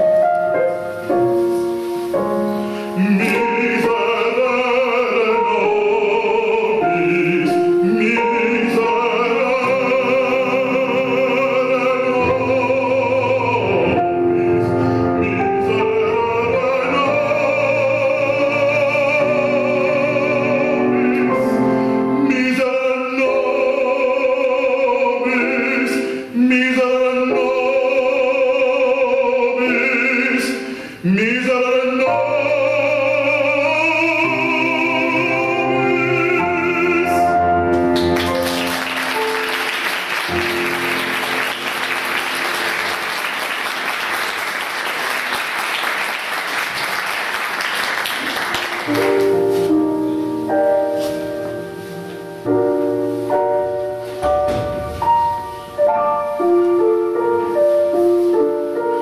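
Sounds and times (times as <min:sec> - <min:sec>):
piano: 0:00.0 - 0:59.0
man singing operatically: 0:02.8 - 0:37.9
applause: 0:38.0 - 0:49.2.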